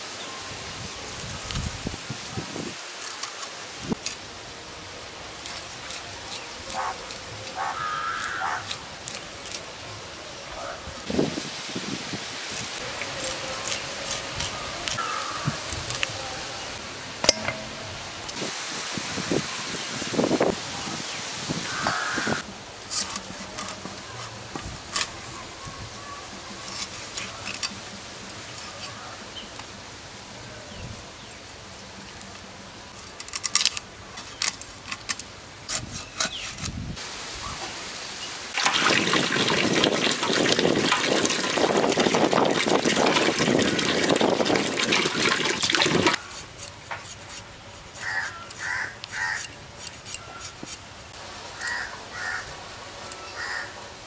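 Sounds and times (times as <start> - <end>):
water pouring and splashing: 37.8 - 46.2.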